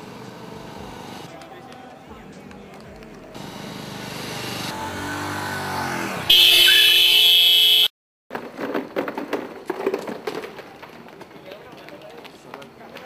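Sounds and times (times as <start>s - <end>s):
motorcycle engine passing: 3.6s - 7.0s
loud shrill blare: 6.3s - 7.9s.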